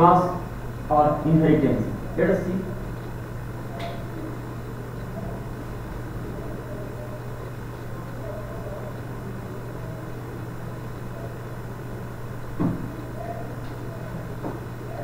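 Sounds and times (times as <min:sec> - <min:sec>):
low room hum: 0:00.0 - 0:15.0
short knock: 0:12.6 - 0:12.9.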